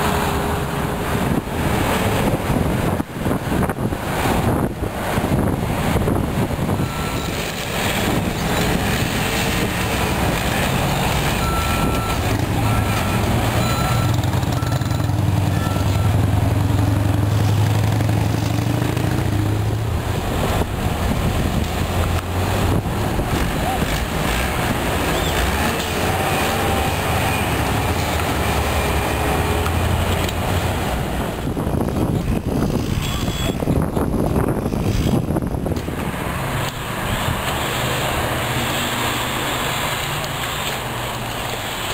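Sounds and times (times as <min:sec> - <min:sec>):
diesel engines rumbling: 0:00.0 - 0:41.9
backup alarm beep: 0:06.8 - 0:07.4, 0:11.4 - 0:16.2, 0:33.0 - 0:33.6.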